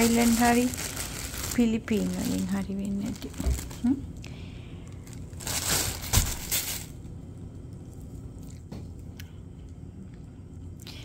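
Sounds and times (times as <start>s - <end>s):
packaging crinkling and crushing: 0.0s - 4.0s, 4.9s - 7.0s.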